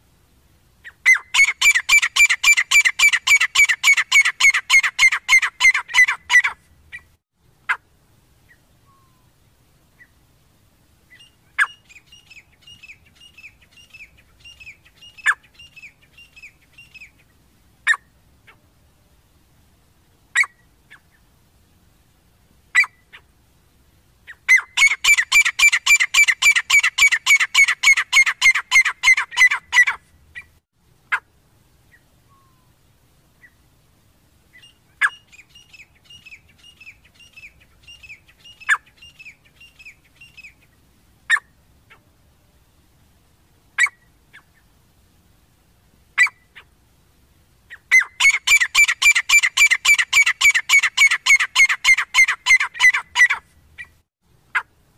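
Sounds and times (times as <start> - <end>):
francolins calling: 0.8 - 7.8, 11.1 - 18.6, 24.2 - 30.5, 34.5 - 42.0, 47.7 - 54.7.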